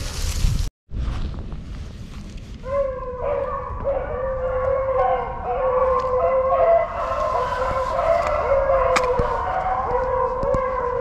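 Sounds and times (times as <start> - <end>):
dogs baying and howling: 2.6 - 11.0.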